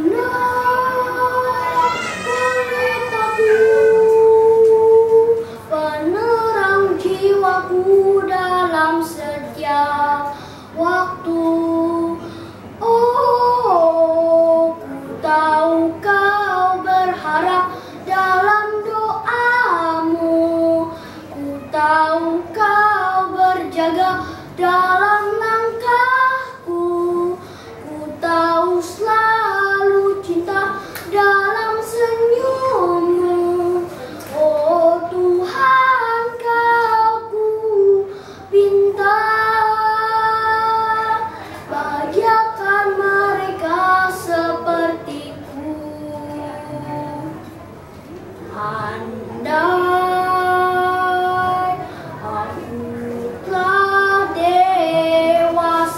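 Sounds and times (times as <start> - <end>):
boy singing solo: 0.0 - 47.4.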